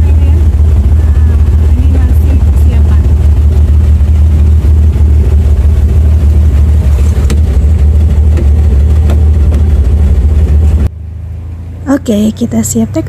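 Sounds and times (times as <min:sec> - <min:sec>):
aircraft engine drone: 0:00.0 - 0:13.0.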